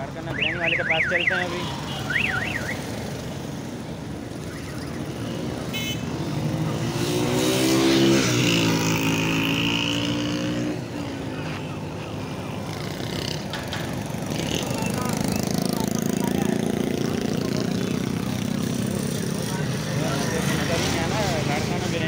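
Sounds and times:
street traffic: 0.0 - 22.0
motor vehicle passing: 1.6 - 22.0.

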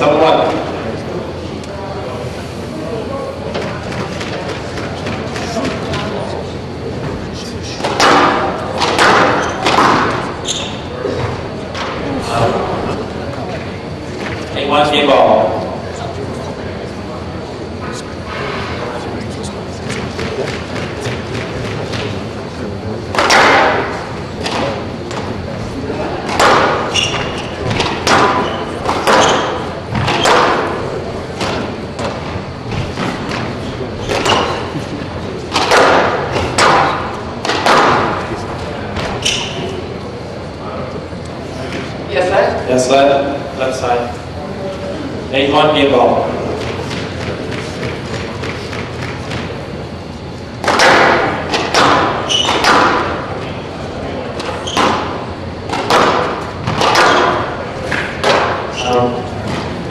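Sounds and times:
squash ball striking racquets and walls: 3.5 - 6.4, 7.8 - 12.6, 19.8 - 22.4, 23.1 - 25.5, 26.1 - 39.8, 46.4 - 49.7, 50.5 - 59.9
shoes squeaking on court floor: 9.3 - 11.4, 26.8 - 30.4, 31.5 - 34.8, 39.0 - 39.8, 52.2 - 52.7, 54.4 - 55.2
squash ball thuds: 26.2 - 30.8.

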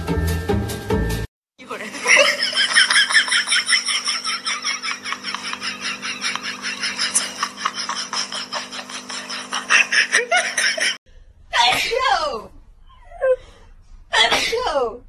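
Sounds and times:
handheld fan motor hum: 2.1 - 11.0.

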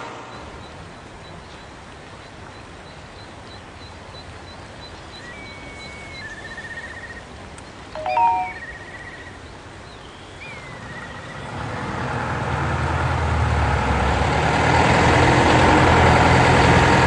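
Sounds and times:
bird whistle and trill: 5.2 - 7.2, 8.0 - 9.3.

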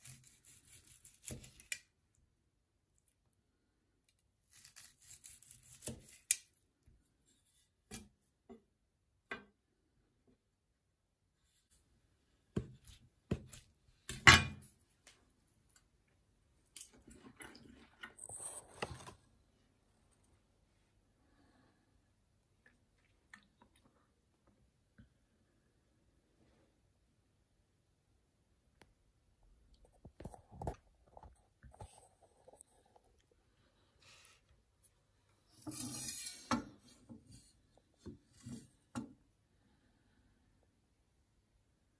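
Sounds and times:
knife slicing steak: 0.0 - 1.8
knife and fork scraping board: 35.5 - 37.0.

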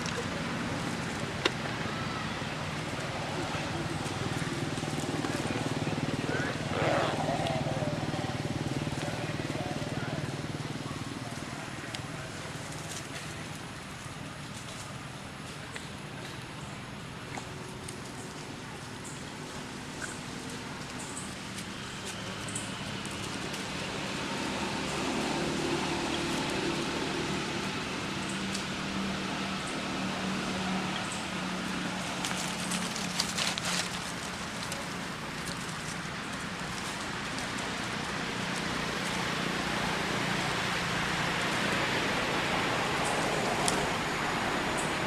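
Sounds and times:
crackles: 31.8 - 40.5.

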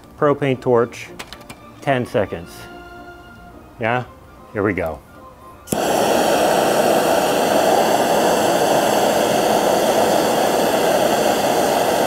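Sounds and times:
propane torch hissing: 5.7 - 12.0
propane torch ignition click: 5.7 - 12.0.

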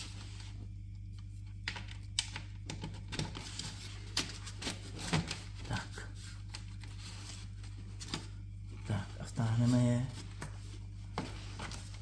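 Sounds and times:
cable connectors clicking and tapping: 1.5 - 3.4.

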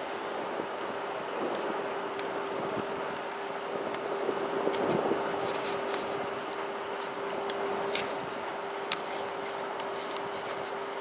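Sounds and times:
steady hum: 0.0 - 11.0
light ticks and rubs: 0.1 - 2.8, 3.9 - 10.9.

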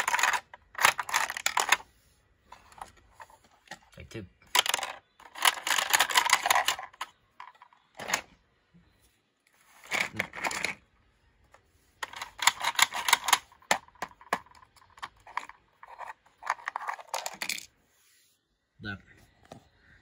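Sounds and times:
plastic toy parts clicking and clattering: 0.0 - 1.9, 2.5 - 8.3, 9.8 - 10.8, 12.0 - 17.7.

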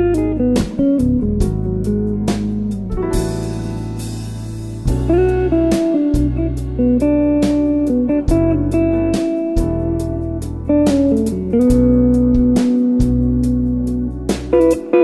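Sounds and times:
bass guitar: 0.0 - 15.0
smooth jazz guitar melody: 0.0 - 15.0
steady drum beat: 0.6 - 10.0, 10.9 - 13.6, 14.3 - 15.0.

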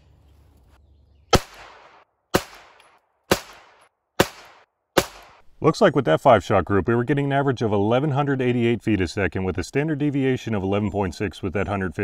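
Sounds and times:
pistol shots with short echo: 1.3 - 5.4.

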